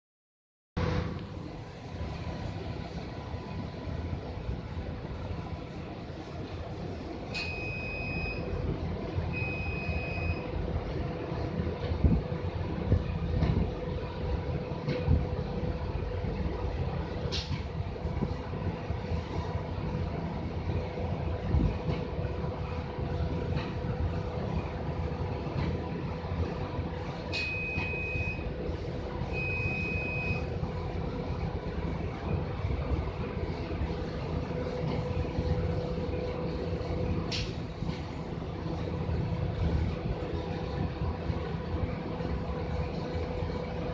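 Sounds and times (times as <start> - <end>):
steady industrial hum: 0.8 - 43.9
long electronic warning beeps: 7.3 - 8.6, 9.3 - 10.6, 27.3 - 28.6, 29.3 - 30.6.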